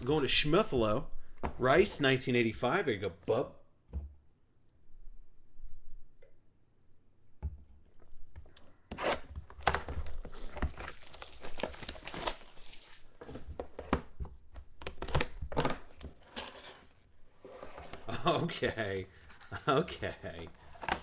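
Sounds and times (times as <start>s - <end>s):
plastic wrap tearing and crinkling: 9.0s - 13.2s.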